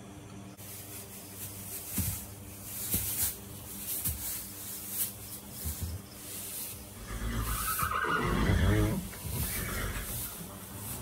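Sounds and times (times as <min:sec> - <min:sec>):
steady low hum: 0:00.0 - 0:07.6, 0:08.2 - 0:11.0
straw rustling: 0:00.6 - 0:11.0.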